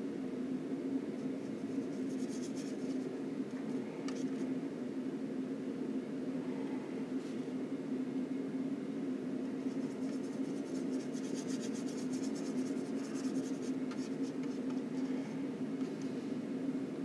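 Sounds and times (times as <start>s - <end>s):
steady low hum: 0.0s - 17.0s
paintbrush scratchy strokes: 1.4s - 3.1s, 9.6s - 15.3s.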